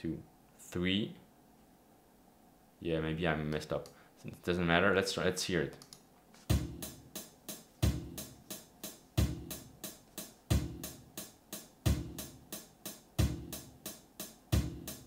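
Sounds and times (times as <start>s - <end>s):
hi-hat ticking: 5.7s - 15.0s
kick drum: 6.5s - 7.0s, 7.8s - 8.4s, 9.2s - 9.6s, 10.5s - 11.1s, 11.9s - 12.4s, 13.2s - 13.6s, 14.5s - 15.0s.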